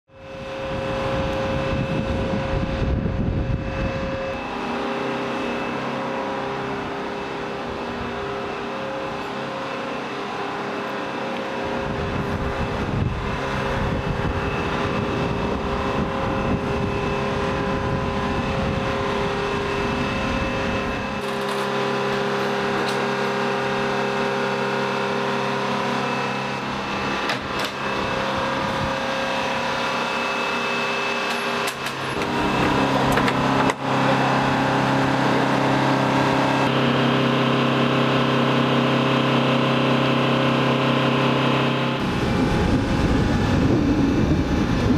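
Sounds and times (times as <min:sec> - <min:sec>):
machinery hum and whine: 0:00.1 - 0:44.9
low rumble: 0:42.0 - 0:44.9.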